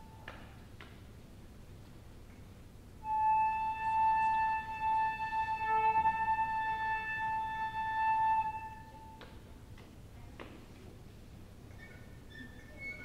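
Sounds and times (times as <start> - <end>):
flute long high note: 3.0 - 9.2.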